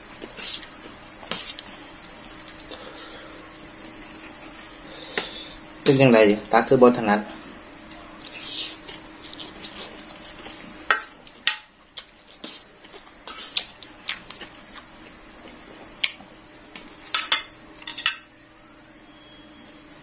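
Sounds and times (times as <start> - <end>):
insect chirring: 0.0 - 20.0
cutlery clinking on metal tray: 17.2 - 18.2.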